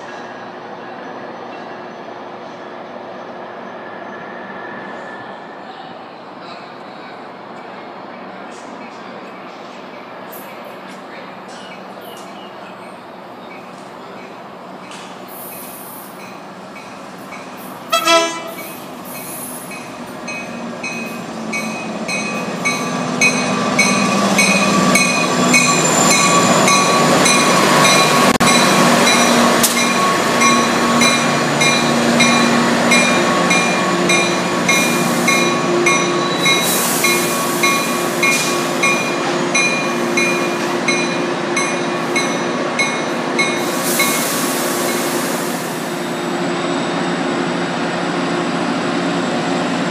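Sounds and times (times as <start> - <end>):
train rolling past: 0.0 - 49.9
train horn blast: 17.9 - 18.7.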